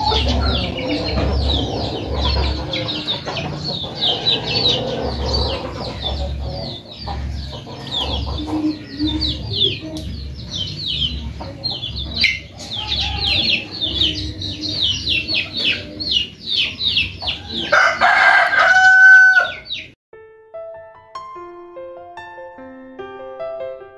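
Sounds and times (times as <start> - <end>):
rooster crowing: 0.0 - 6.2, 12.7 - 14.4, 17.4 - 19.8
chickens clucking: 0.0 - 20.0
chicks peeping: 0.0 - 20.0
soft piano tune: 20.2 - 23.9.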